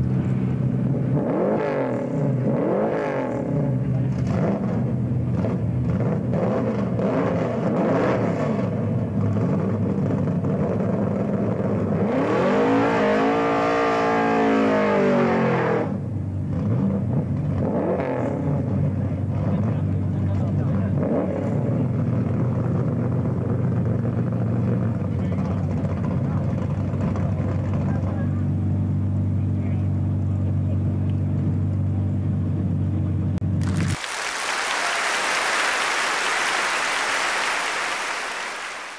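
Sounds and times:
drag car engine revving: 0.8s - 18.8s
tyres spinning in burnout: 33.6s - 38.9s.

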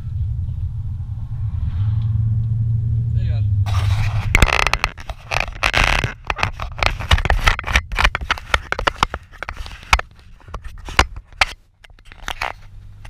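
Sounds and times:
vehicle road rumble: 0.0s - 13.0s
camera mount clicking and scraping: 3.7s - 12.8s.

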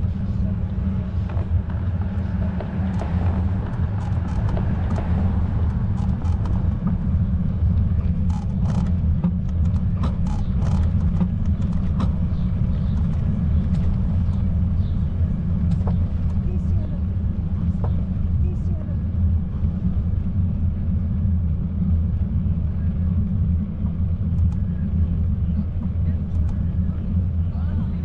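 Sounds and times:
wind buffeting microphone: 0.0s - 28.0s
faint clicks and taps: 25.8s - 27.1s.

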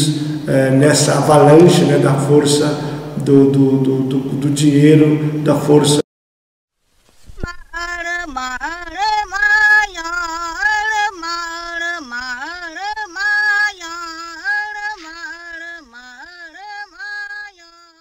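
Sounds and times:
person singing unaccompanied: 7.3s - 18.0s.

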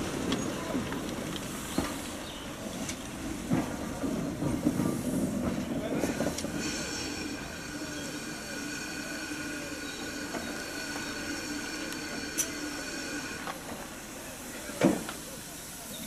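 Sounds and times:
steam hissing whistle: 6.6s - 13.4s.

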